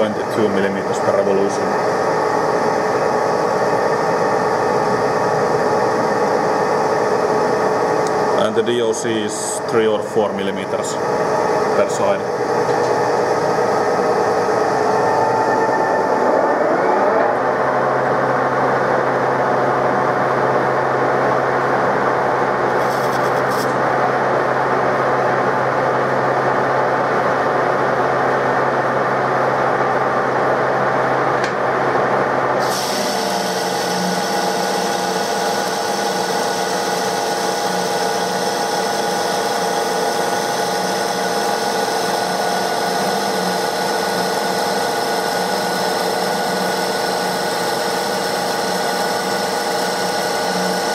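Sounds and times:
high machine whine: 0.0 - 50.9
lathe spindle and gearbox hum: 0.0 - 50.9
lathe tool scraping metal: 22.7 - 23.8.

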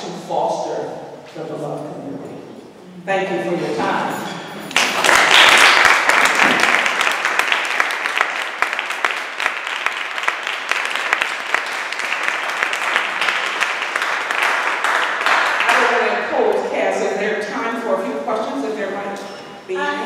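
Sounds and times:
audience applauding: 4.7 - 16.0.

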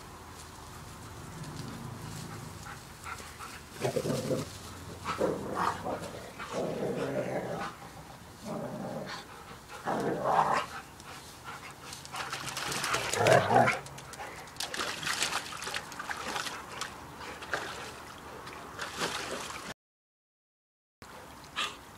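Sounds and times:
dog splashing in paddling pool: 11.6 - 19.7.

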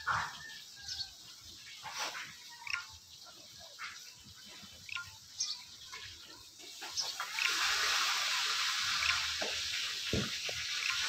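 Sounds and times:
steady hiss: 6.2 - 11.0.

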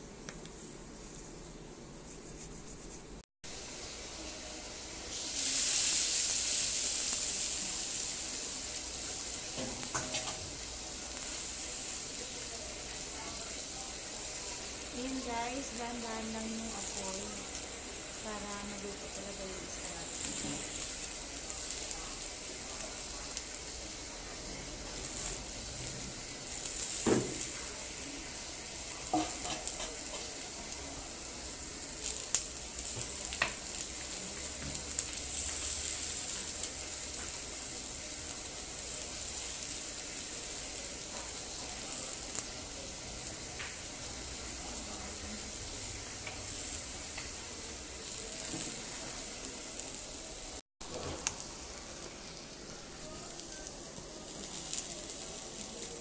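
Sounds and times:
fish sizzling on grill: 3.4 - 56.0
crackles and pops: 31.6 - 43.8, 50.8 - 52.2.

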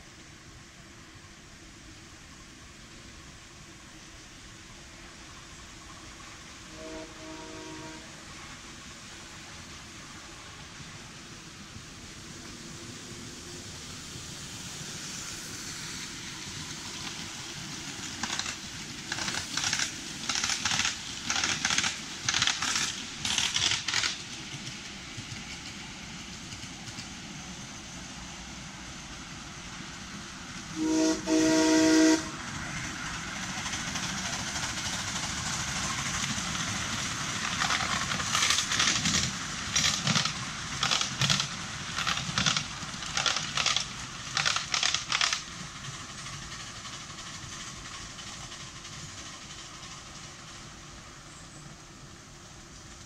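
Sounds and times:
steam locomotive chuffing: 0.9 - 53.0
steam whistle blast: 6.7 - 8.2, 30.7 - 32.4.

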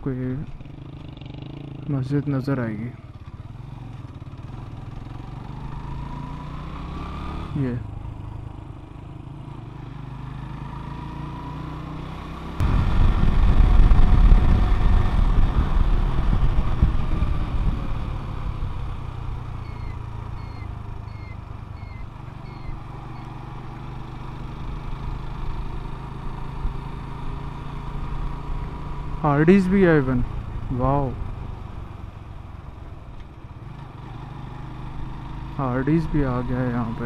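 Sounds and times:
motorcycle engine running: 0.2 - 37.0
wind noise on microphone: 12.6 - 18.2.

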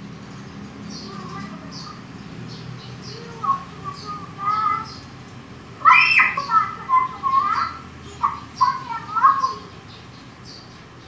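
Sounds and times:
high-pitched voice squealing: 5.8 - 9.6.

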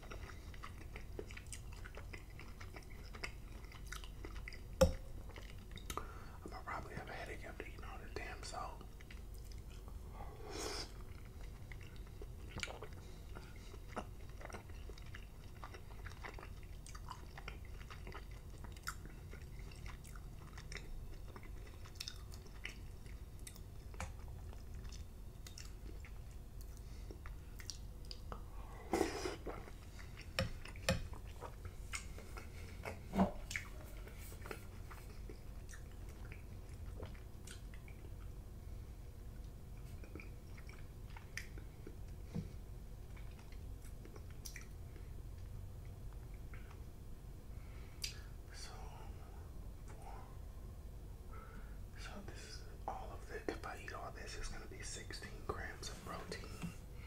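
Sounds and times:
wet chewing: 0.0 - 6.1, 10.8 - 38.4, 39.4 - 42.4, 43.0 - 46.8
mouth clicks and lip smacks: 30.2 - 33.7, 43.1 - 44.8, 48.0 - 48.3.

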